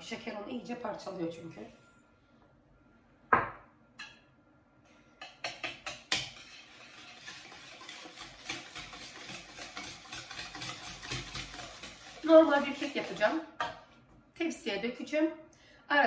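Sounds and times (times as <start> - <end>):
whisk clicking against bowl: 5.2 - 13.2.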